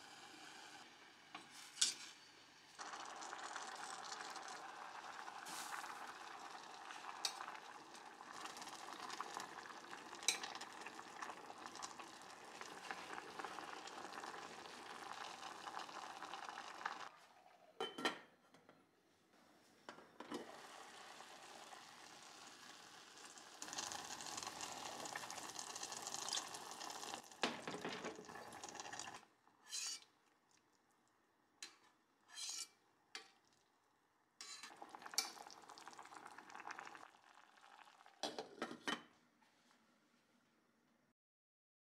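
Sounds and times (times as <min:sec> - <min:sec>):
liquid simmering in pot: 0:02.4 - 0:17.8, 0:20.2 - 0:32.3, 0:32.9 - 0:38.8
metal lid and ladle clinking: 0:29.7 - 0:30.1, 0:34.4 - 0:35.4.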